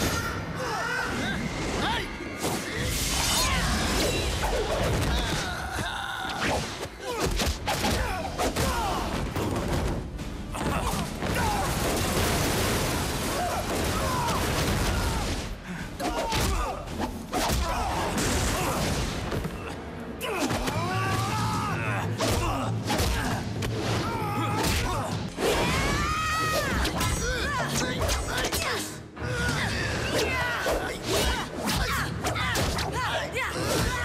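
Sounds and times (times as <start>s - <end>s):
film score music: 0.0s - 34.0s.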